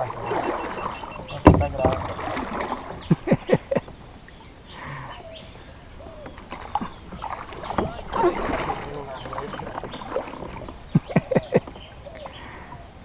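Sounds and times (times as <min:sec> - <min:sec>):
dull thumps on plastic hull: 0:01.4 - 0:02.1
sharp knock on plastic hull: 0:01.4 - 0:02.1.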